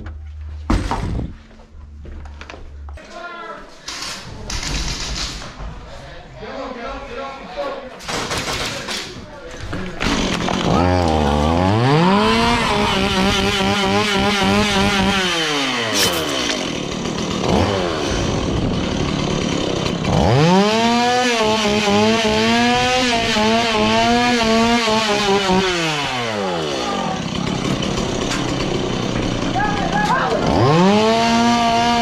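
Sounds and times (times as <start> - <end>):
chainsaw revving: 10.0 - 32.0.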